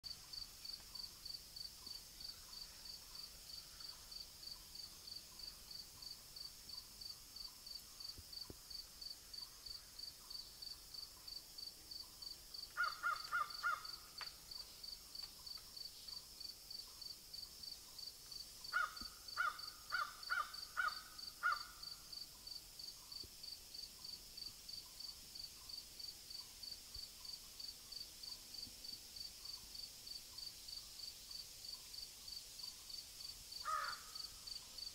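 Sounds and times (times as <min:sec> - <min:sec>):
insect chirping: 0:00.1 - 0:34.9
crow cawing: 0:12.8 - 0:14.2, 0:18.7 - 0:21.9, 0:33.6 - 0:34.3.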